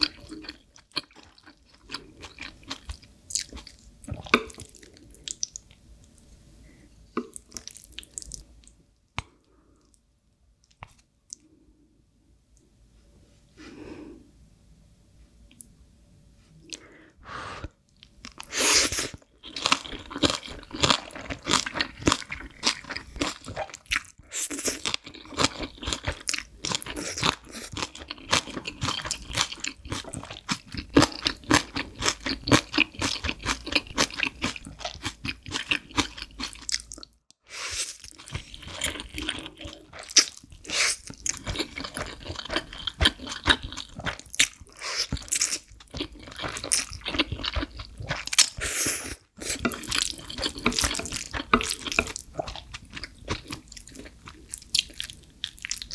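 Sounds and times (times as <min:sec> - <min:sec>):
wet chewing and slurping: 0:18.3 - 0:55.9.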